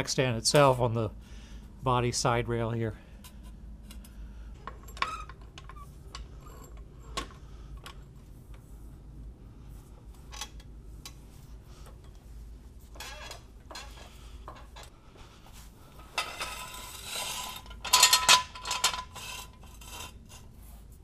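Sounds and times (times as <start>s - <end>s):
metal tools clinking: 17.6s - 19.3s.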